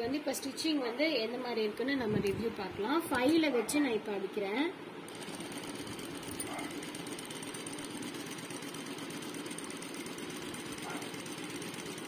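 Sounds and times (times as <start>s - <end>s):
sewing machine stitching: 5.1s - 12.0s.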